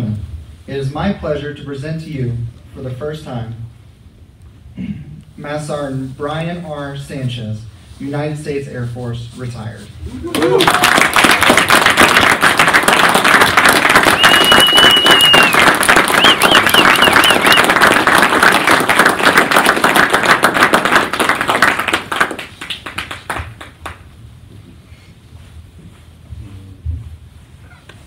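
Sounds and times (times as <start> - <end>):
audience applauding: 10.3 - 24.0
high whistle: 14.0 - 17.7
warbling whistles: 14.0 - 17.8.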